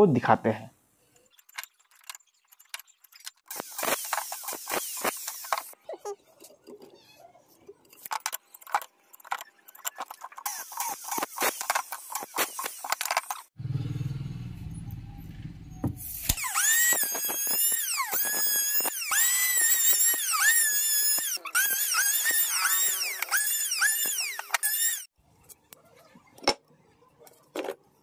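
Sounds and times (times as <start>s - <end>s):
low hum: 13.6s - 16.2s.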